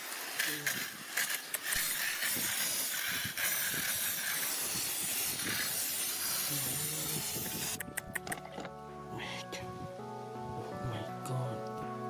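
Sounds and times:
water spray hissing: 0.0s - 8.4s.

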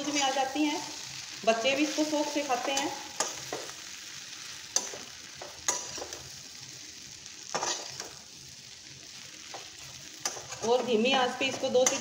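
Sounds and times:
food sizzling: 0.0s - 12.0s
metal spatula scraping pan: 7.5s - 8.2s.

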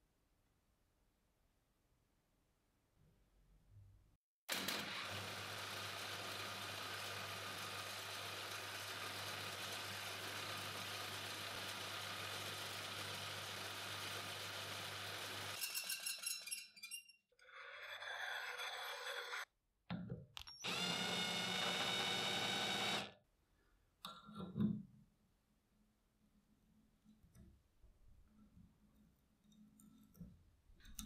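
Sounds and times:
electric drill boring into steel: 4.5s - 15.6s, 20.6s - 23.2s
drill motor whining: 20.5s - 23.1s.

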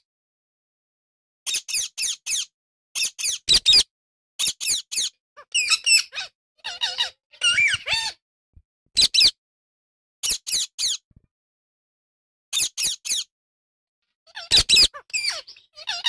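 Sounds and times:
parakeets calling and chattering: 1.5s - 3.8s, 4.4s - 8.2s, 9.0s - 9.4s, 10.2s - 11.0s, 12.6s - 13.3s, 14.3s - 16.0s.

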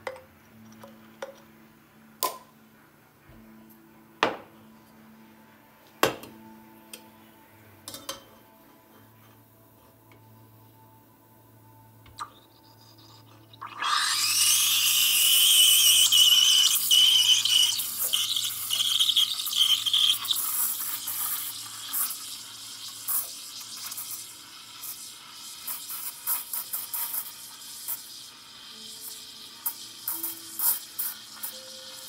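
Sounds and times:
steam wand hissing: 13.6s - 32.0s.

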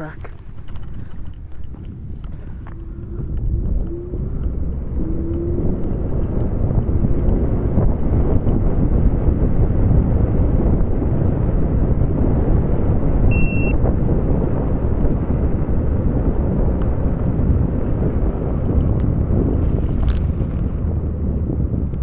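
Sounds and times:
wind rumble on microphone: 0.0s - 22.0s
short electronic beep: 13.3s - 13.8s.

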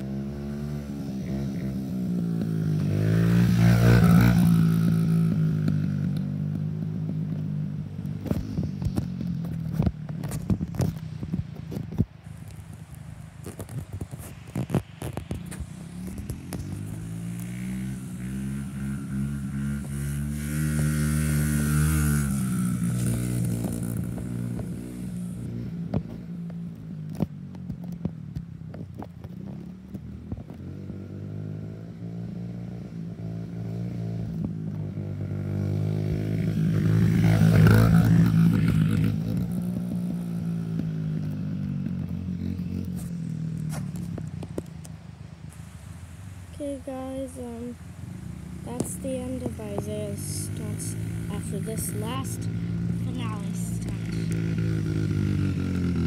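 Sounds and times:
dirt bike engine: 0.0s - 56.0s.

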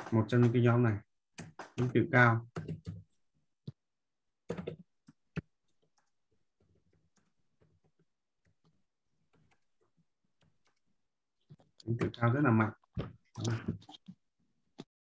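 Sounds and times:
computer keyboard typing: 1.3s - 3.2s, 4.5s - 10.8s.

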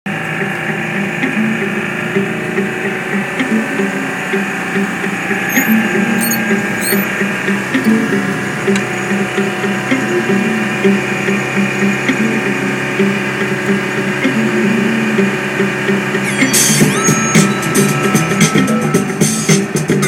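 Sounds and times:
vehicle engine and road hum: 0.1s - 16.8s
sharp clicks: 5.5s - 7.0s
pitched tones shifting: 5.5s - 7.2s.

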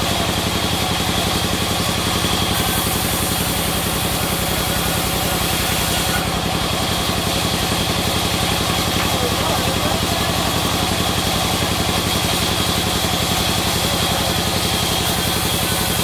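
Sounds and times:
band saw chugging: 0.0s - 16.0s
saw blade hissing through wood: 1.9s - 7.8s, 10.0s - 16.0s.

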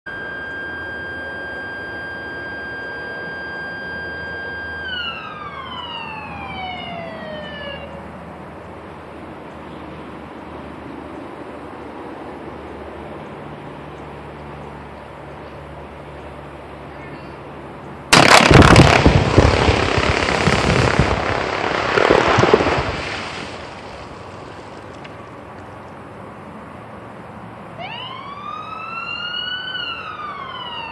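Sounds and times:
warning siren winding down: 0.1s - 8.0s, 27.8s - 30.9s
noisy rumble: 14.6s - 26.2s
loud rock blast: 18.1s - 23.2s
rock and dirt falling knocks: 21.7s - 24.0s.

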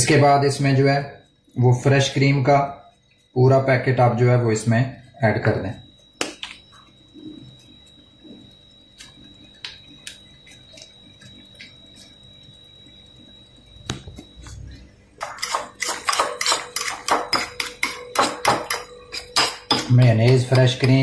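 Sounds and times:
spoon scraping a bowl: 14.5s - 21.0s.

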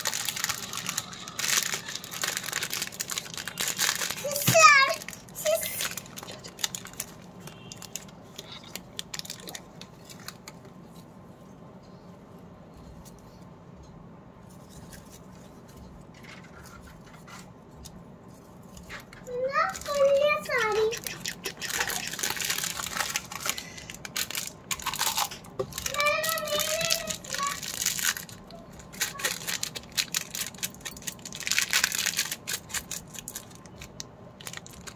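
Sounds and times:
plastic wrapper crinkling: 0.0s - 10.6s, 18.7s - 34.9s.

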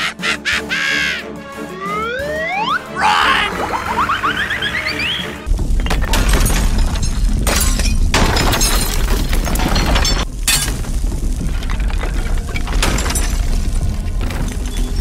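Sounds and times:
crashing and shattering debris: 5.4s - 15.0s.

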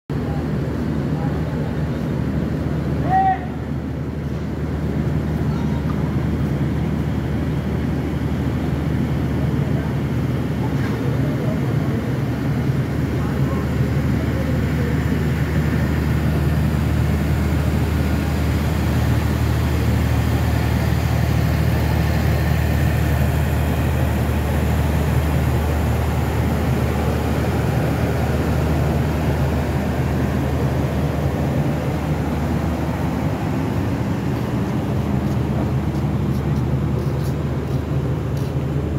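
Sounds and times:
diesel generator drone: 0.1s - 38.9s.

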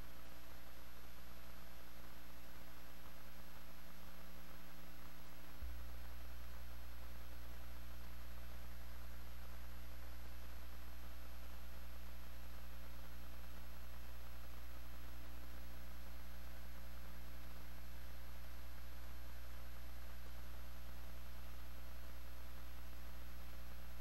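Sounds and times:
electrical mains hum: 0.0s - 24.0s.

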